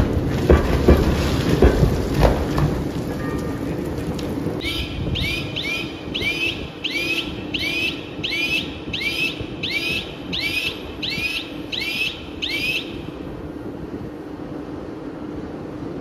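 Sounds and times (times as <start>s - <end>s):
crushing machinery hum and rumble: 0.0s - 16.0s
high chirping whistle: 4.6s - 13.1s.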